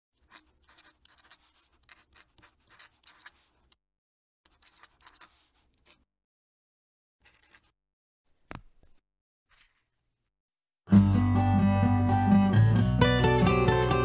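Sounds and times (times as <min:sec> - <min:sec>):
fountain pen scratching on paper: 0:00.2 - 0:03.8, 0:04.5 - 0:06.1, 0:07.2 - 0:07.7.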